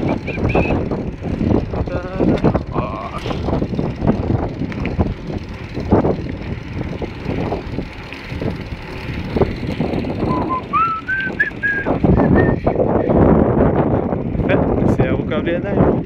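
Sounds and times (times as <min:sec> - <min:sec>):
bicycle tyres rolling on asphalt: 0:00.0 - 0:16.0
wind buffeting microphone: 0:00.0 - 0:16.0
short rising whistle: 0:10.3 - 0:12.6.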